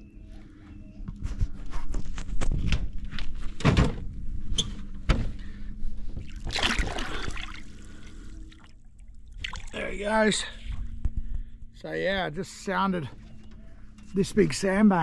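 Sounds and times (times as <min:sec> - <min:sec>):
water splashing and sloshing: 0:06.0 - 0:10.1.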